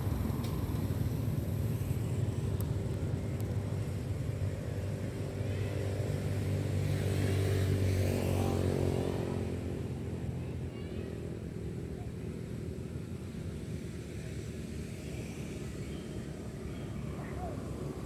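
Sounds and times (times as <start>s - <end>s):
vehicle engine passing by: 5.5s - 10.4s.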